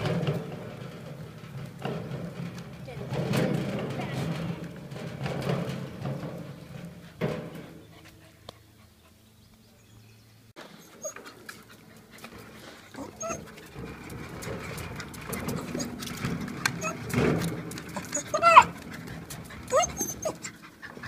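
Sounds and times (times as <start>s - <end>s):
dog whining and yelping: 10.8s - 11.3s, 13.0s - 13.6s, 16.8s - 17.0s, 18.0s - 18.8s, 19.6s - 21.0s.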